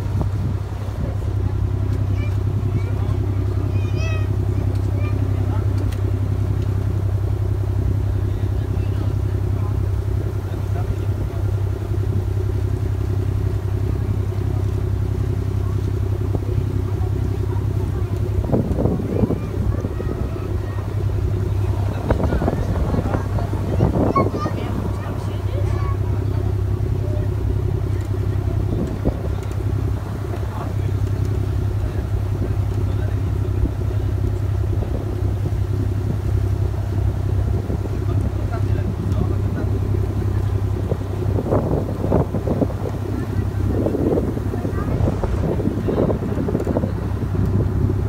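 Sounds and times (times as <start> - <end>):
boat engine humming: 0.0 - 48.0.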